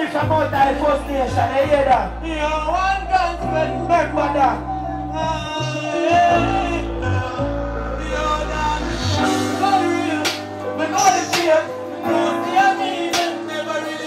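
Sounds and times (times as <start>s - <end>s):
backing track with bass line: 0.0s - 14.0s
man singing into microphone: 0.0s - 14.0s.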